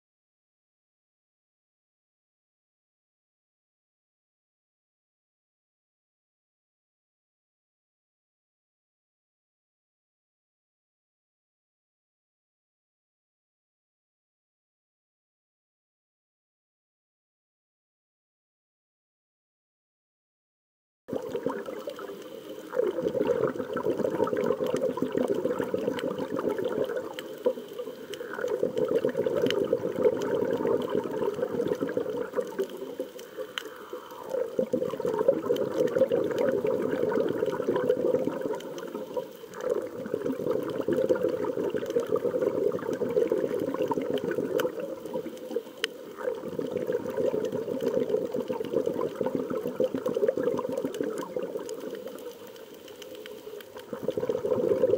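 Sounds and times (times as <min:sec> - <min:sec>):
faint clicks: 0:21.2 - 0:42.2, 0:43.7 - 0:48.6, 0:49.2 - 0:54.3.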